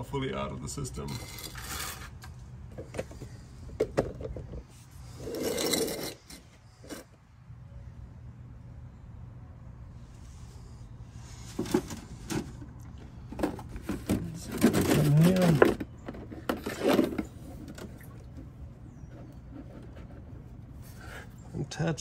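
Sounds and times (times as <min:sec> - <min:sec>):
scraping: 0:01.0 - 0:07.2, 0:11.2 - 0:21.3.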